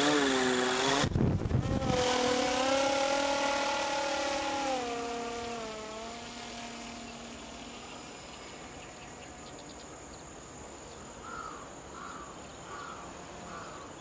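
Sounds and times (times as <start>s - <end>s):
model aircraft motor whining: 0.0s - 9.2s.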